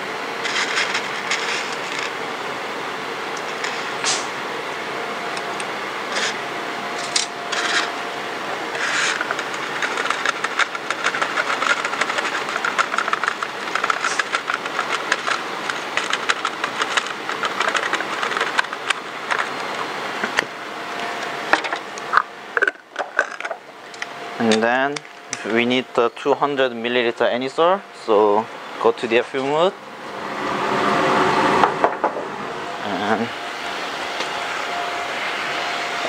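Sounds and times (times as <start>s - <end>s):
spatula scraping plastic dish: 8.8s - 19.7s.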